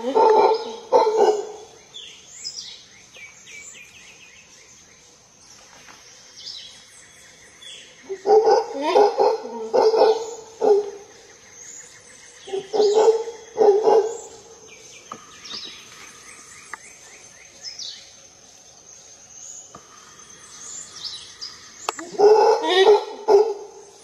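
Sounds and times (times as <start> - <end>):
howler monkey roaring: 0.0 - 1.7, 8.1 - 11.1, 12.4 - 14.5, 22.0 - 23.9.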